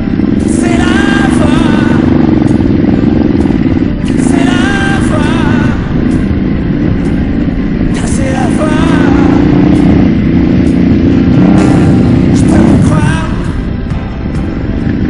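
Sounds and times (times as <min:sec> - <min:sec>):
motorcycle engine running: 0:00.0 - 0:15.0
pop song: 0:00.4 - 0:02.2, 0:04.0 - 0:06.2, 0:07.9 - 0:10.0, 0:11.5 - 0:14.0.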